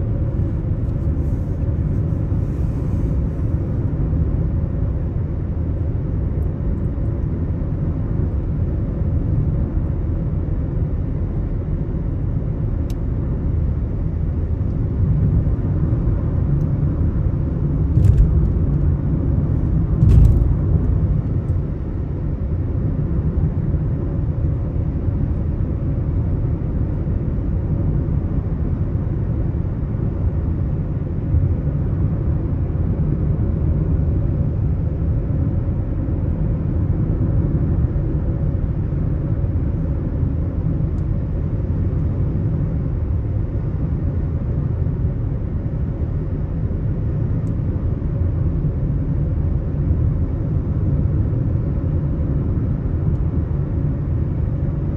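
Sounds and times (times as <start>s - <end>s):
car road rumble: 0.0s - 54.9s.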